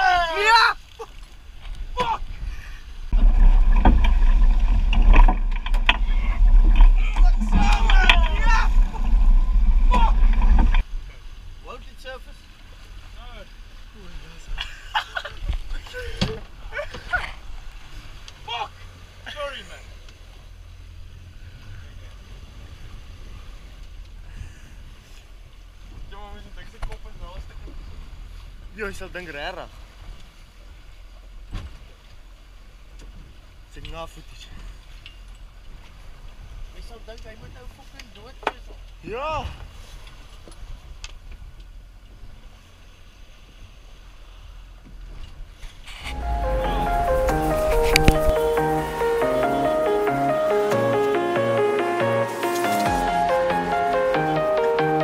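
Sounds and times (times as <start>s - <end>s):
outboard motors rumbling: 0.8s - 54.8s
wind noise on microphone: 1.7s - 10.8s, 45.1s - 49.1s
background music: 46.1s - 55.0s.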